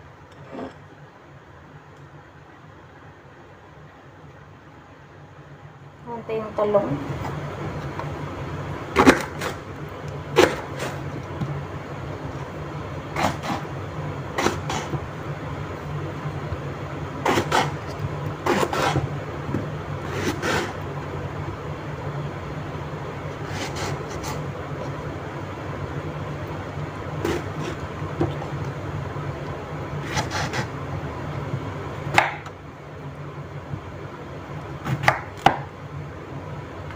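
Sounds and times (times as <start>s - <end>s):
knife slicing on wooden board: 18.5s - 19.0s.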